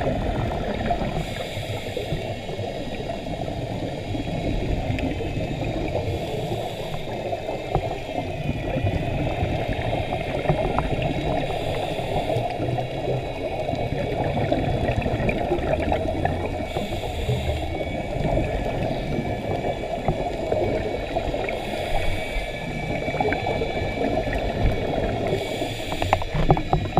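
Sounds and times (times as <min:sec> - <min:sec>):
crackling underwater hiss: 0:00.0 - 0:26.9
faint wavering whine: 0:00.0 - 0:26.9
regulator breathing hiss: 0:01.1 - 0:03.2, 0:05.4 - 0:08.2, 0:09.7 - 0:13.8, 0:16.4 - 0:19.9, 0:21.0 - 0:26.7.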